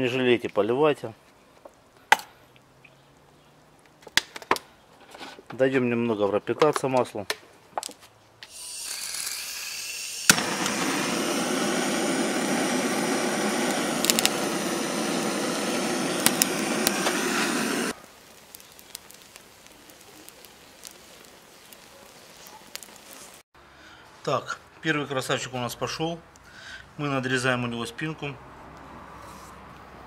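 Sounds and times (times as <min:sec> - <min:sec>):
coals crackling: 0:00.1 - 0:06.2, 0:06.8 - 0:09.4, 0:10.0 - 0:23.5
blowtorch flame hissing: 0:08.5 - 0:23.4
blowtorch ignition click: 0:10.1 - 0:21.0.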